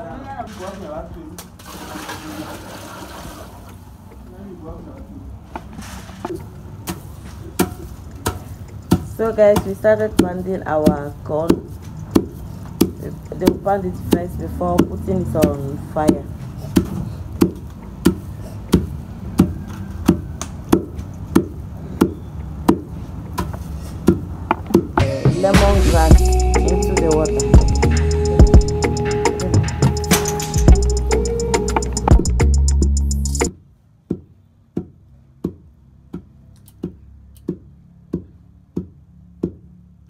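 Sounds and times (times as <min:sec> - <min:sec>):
pestle pounding corn in mortar: 0:06.9 - 0:25.0
background music: 0:25.0 - 0:33.5.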